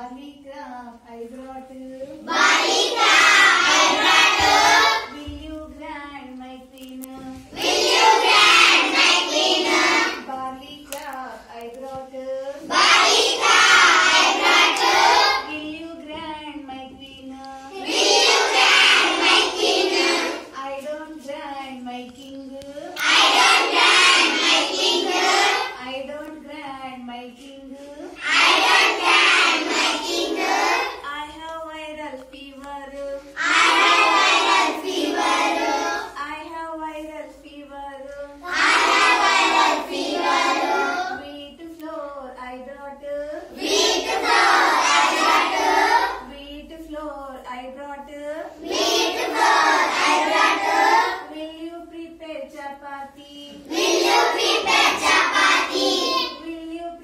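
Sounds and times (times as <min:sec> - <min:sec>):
children singing together: 0:02.1 - 0:05.3, 0:07.4 - 0:10.3, 0:12.6 - 0:15.6, 0:17.6 - 0:20.6, 0:22.9 - 0:25.8, 0:28.1 - 0:31.0, 0:33.3 - 0:36.2, 0:38.4 - 0:41.4, 0:43.5 - 0:46.3, 0:48.6 - 0:51.3, 0:53.5 - 0:56.5
woman singing: 0:05.1 - 0:07.6, 0:15.4 - 0:17.7, 0:20.6 - 0:22.9, 0:25.8 - 0:28.2, 0:31.0 - 0:33.4, 0:36.2 - 0:38.4, 0:41.2 - 0:43.5, 0:46.2 - 0:48.5, 0:51.2 - 0:53.7, 0:56.4 - 0:57.0.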